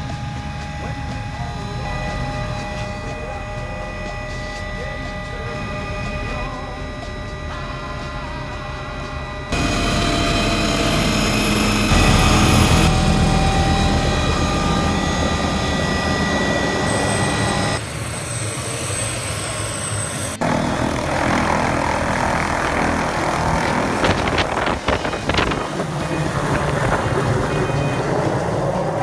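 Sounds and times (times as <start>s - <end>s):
helicopter rotor wash rushing: 0.0s - 29.0s
helicopter turbine whine: 0.0s - 29.0s.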